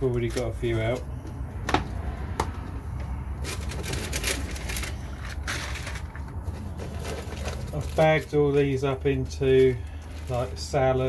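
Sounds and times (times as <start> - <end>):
seed packets rustling: 3.4 - 11.0.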